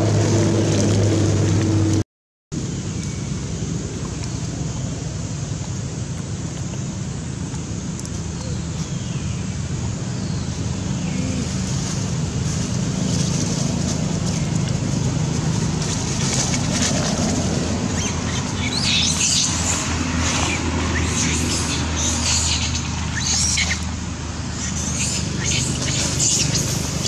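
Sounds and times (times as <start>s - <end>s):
low background rumble: 2.6s - 27.0s
macaques squealing: 20.5s - 23.9s, 24.5s - 27.0s.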